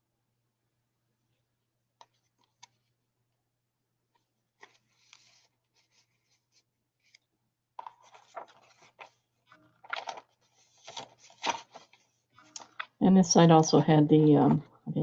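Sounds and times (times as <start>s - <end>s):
paper pages rustling: 4.2s - 7.2s, 7.8s - 13.0s.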